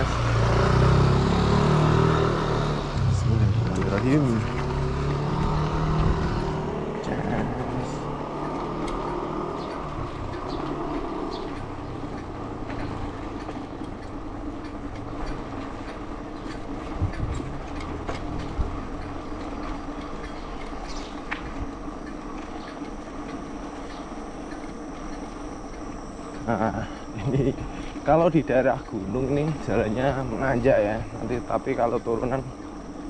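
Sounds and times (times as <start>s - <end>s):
bike clicks and rattles: 3.0s - 30.6s
tyre and wind noise: 14.6s - 19.2s.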